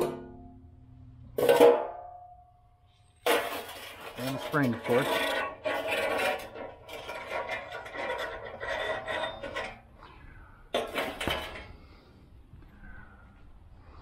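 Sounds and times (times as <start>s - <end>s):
metal spring scraping inside tube: 3.3s - 10.2s.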